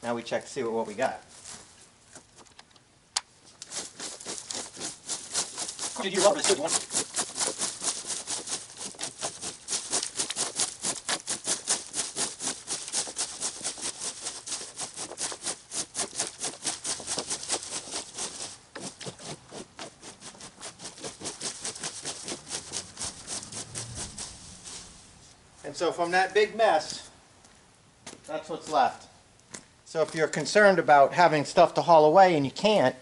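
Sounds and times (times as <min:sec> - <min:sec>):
rake scratching over grass: 0:03.4 - 0:27.1, 0:28.3 - 0:29.0.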